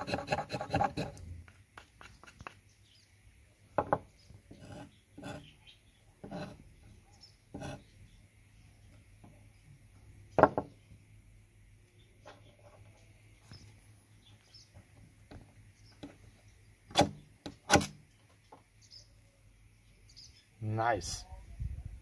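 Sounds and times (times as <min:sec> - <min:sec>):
knife scraping a firesteel: 0:00.0 - 0:01.3, 0:04.5 - 0:05.6, 0:06.2 - 0:06.7, 0:07.6 - 0:07.9.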